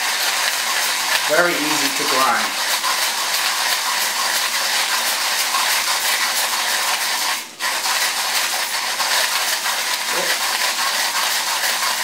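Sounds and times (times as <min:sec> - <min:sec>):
manual coffee grinder grinding beans: 0:00.0 - 0:12.0.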